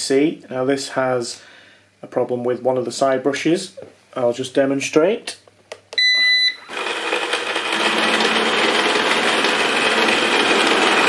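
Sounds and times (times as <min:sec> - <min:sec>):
robot vacuum beep: 0:06.0 - 0:06.8
robot vacuum running: 0:06.7 - 0:11.0.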